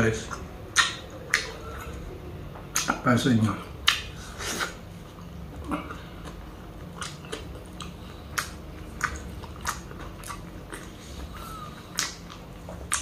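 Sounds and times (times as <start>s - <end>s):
wet mouth clicks: 0.2s - 2.0s, 2.7s - 3.0s, 6.3s - 13.0s
close chewing: 3.6s - 13.0s.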